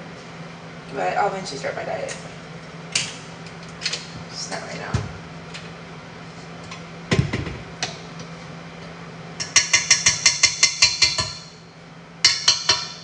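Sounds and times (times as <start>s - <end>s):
whisk clinking on metal bowl: 9.4s - 11.5s.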